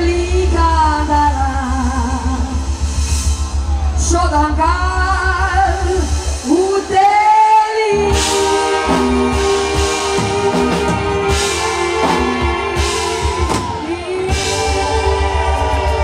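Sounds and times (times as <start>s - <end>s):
woman singing into a microphone: 0.0s - 2.8s, 4.0s - 16.0s
steady drum beat: 1.6s - 16.0s.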